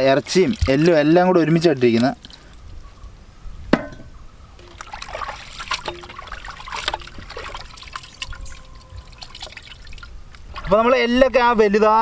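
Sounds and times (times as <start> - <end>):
meat sloshing in pot of water: 0.0 - 1.2, 4.6 - 10.7
water splashes and drips: 0.0 - 2.7, 4.6 - 10.8.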